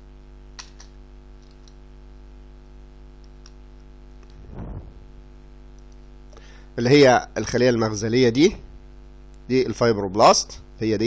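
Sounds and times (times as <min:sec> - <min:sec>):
electrical hum: 0:00.0 - 0:11.0
soft low thump: 0:04.4 - 0:05.1.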